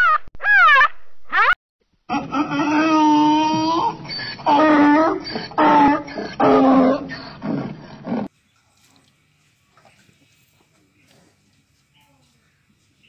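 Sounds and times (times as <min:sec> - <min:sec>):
donkey braying: 0:02.1 - 0:08.3.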